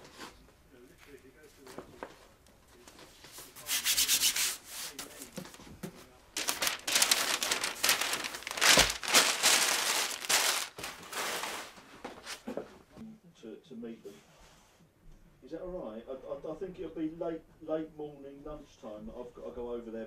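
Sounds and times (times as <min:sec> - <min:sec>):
rubbing on edge of book pages: 0:03.3 - 0:05.3.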